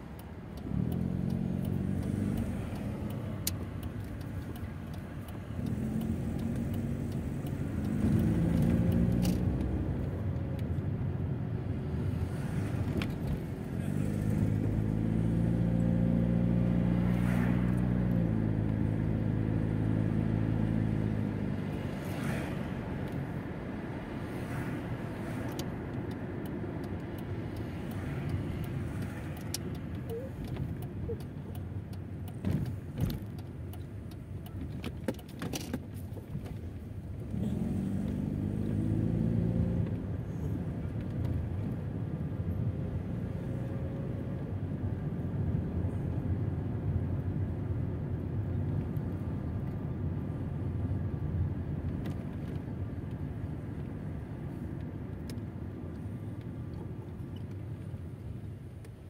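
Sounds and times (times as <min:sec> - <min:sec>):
road and tyre noise: 0:00.0 - 0:59.0
car engine accelerating: 0:00.4 - 0:11.0, 0:11.8 - 0:23.6, 0:36.8 - 0:47.5
sharp clicks and knocks: 0:25.5 - 0:36.6.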